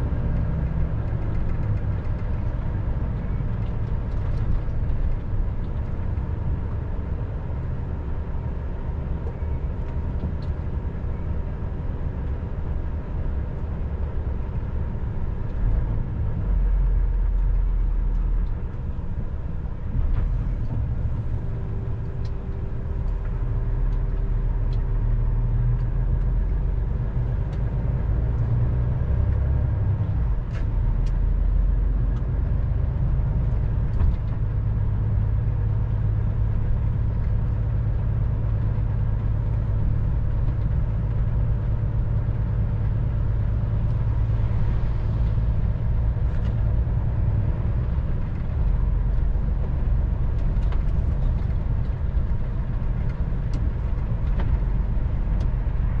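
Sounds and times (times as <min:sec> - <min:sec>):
vehicle engine and road rumble: 0:00.0 - 0:56.0
light ticks: 0:22.2 - 0:24.9.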